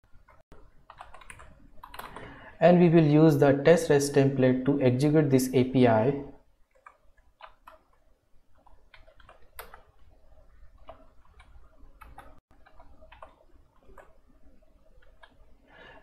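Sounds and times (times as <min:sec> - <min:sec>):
faint keyboard typing: 0:00.1 - 0:02.4, 0:06.6 - 0:16.0.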